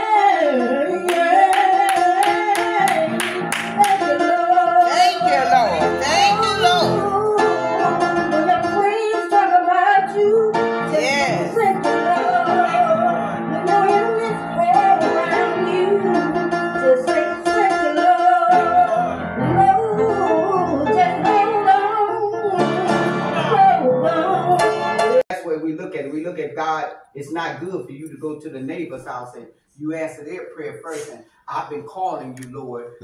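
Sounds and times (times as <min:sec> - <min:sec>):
woman singing into a microphone: 0:00.0 - 0:25.2
guitar accompaniment: 0:30.9 - 0:31.2.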